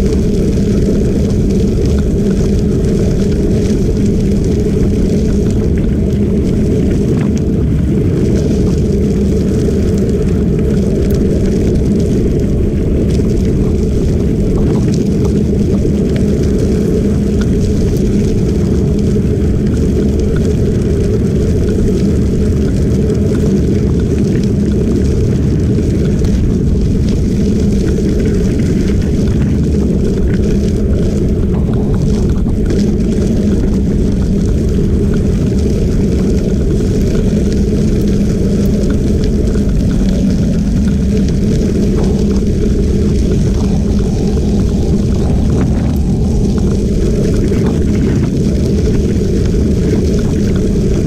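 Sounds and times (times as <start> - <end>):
wind rushing over microphone: 0.0 - 51.0.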